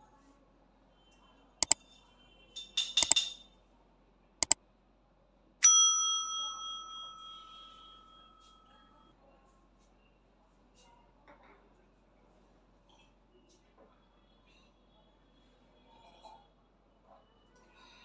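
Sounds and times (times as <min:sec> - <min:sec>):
mouse clicks: 0:03.0 - 0:03.2
bell ding: 0:05.6 - 0:08.1.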